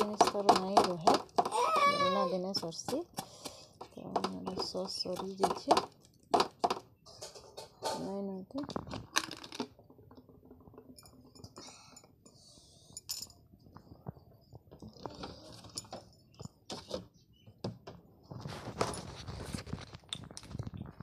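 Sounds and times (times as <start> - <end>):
dishes and utensils clinking: 7.1 - 8.2.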